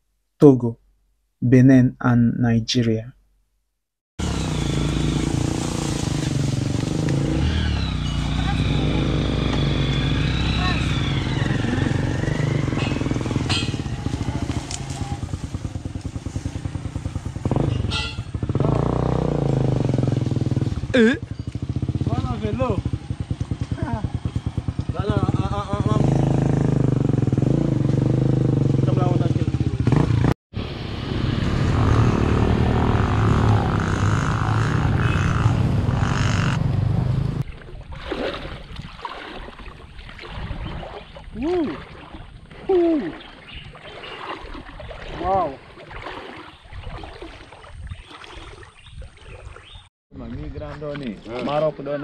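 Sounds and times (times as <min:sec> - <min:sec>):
small motorcycle engine revving: 0:04.2 - 0:37.4
water sloshing and trickling: 0:37.4 - 0:52.0.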